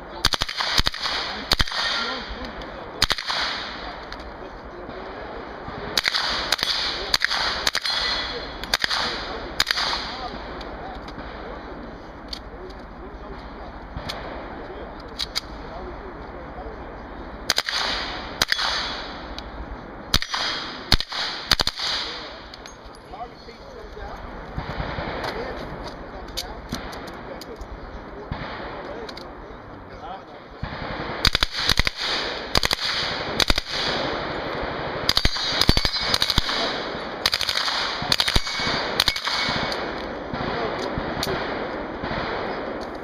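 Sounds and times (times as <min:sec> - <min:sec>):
submachine gun firing: 0:00.2 - 0:02.4, 0:03.0 - 0:04.0, 0:05.7 - 0:11.6, 0:17.5 - 0:19.4, 0:20.1 - 0:22.5, 0:30.6 - 0:43.0.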